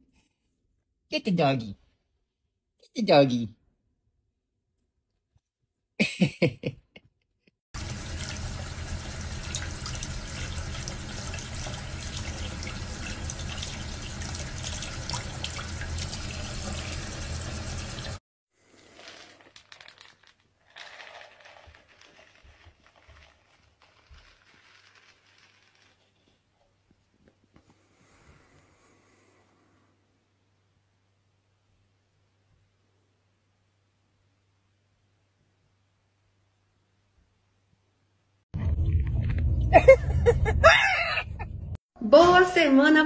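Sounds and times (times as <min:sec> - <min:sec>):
tap water running into sink: 0:07.8 - 0:18.2
faint scratchy rustling: 0:18.8 - 0:27.9.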